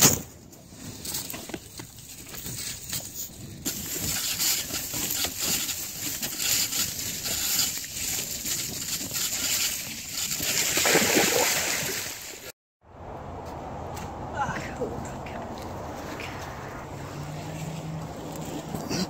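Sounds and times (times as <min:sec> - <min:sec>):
bike knocking and rattling: 0:00.0 - 0:10.8
wind rushing over microphone: 0:12.9 - 0:18.8.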